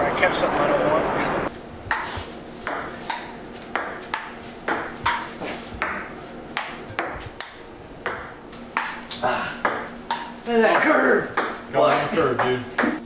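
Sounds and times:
ping pong ball clicking: 9.6s - 13.0s.

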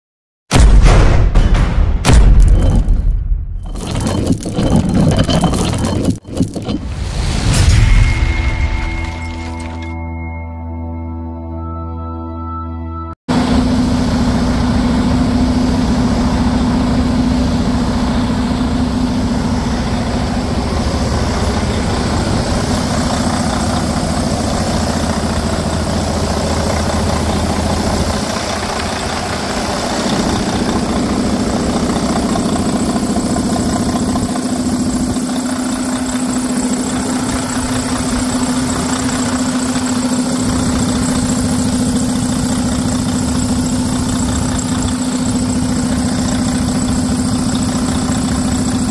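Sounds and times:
diesel engine idling: 13.3s - 48.9s.

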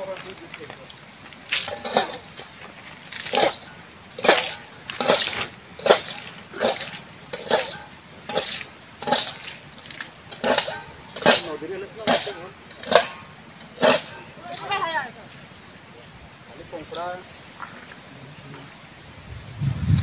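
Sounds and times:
water splashing from a bowl: 1.3s - 14.8s.

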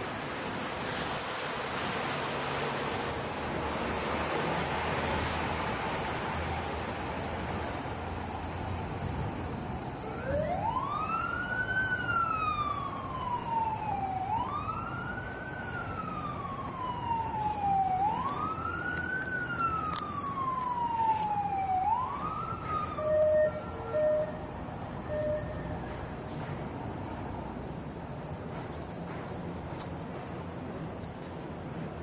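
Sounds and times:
emergency siren wailing: 9.8s - 26.2s.

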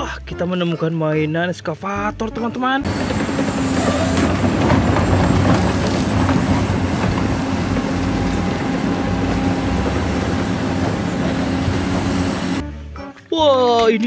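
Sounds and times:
excavator diesel engine running: 2.8s - 12.6s.

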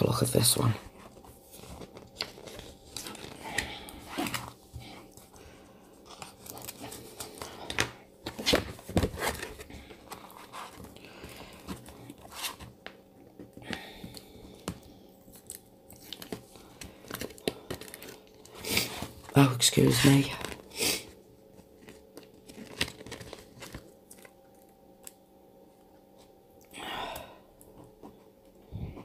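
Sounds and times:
paper rustling and tearing: 0.8s - 5.3s, 21.7s - 24.3s.

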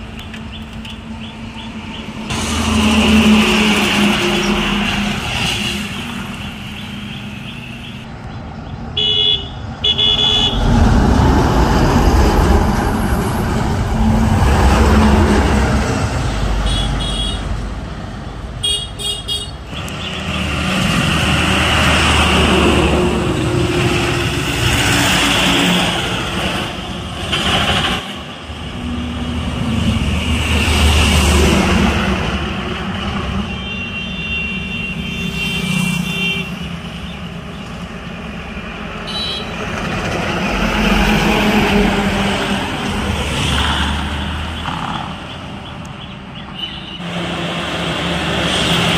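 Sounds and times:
trucks passing on highway: 0.0s - 48.9s
short horn toots: 9.0s - 10.7s
long multi-tone horn: 9.0s - 10.9s, 33.3s - 37.3s, 48.4s - 48.9s.

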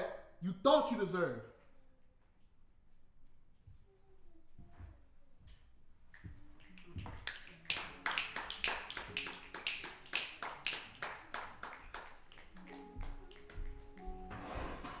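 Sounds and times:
audience applauding: 6.7s - 14.1s.

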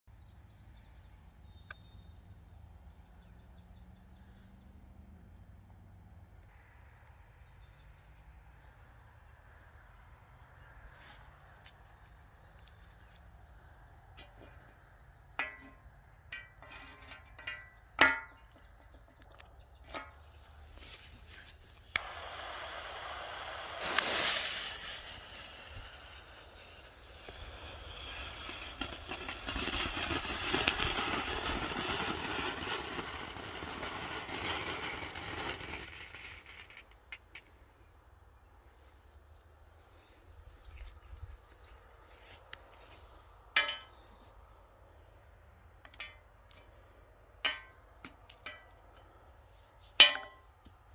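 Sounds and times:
firework spraying sparks: 21.0s - 37.1s.

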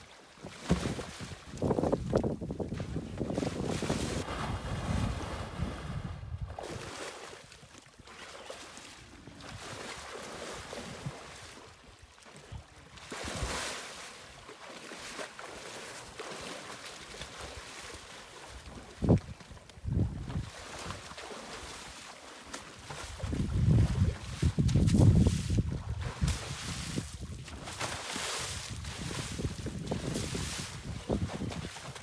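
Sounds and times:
wind buffeting microphone: 1.4s - 6.9s, 19.0s - 20.6s, 23.1s - 27.6s, 28.4s - 32.0s
elephant digging and throwing sand: 26.2s - 27.1s, 27.7s - 31.6s.

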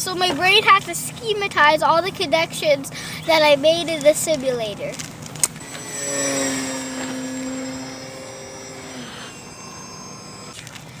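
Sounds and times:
model plane propeller whining: 5.4s - 11.0s.

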